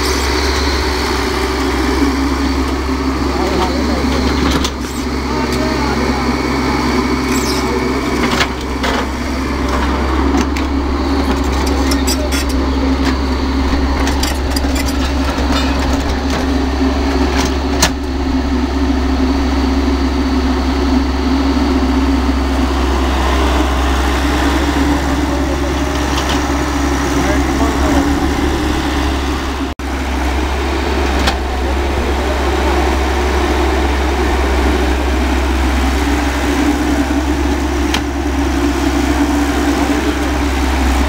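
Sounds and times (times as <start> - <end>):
excavator diesel engine running: 0.0 - 41.0.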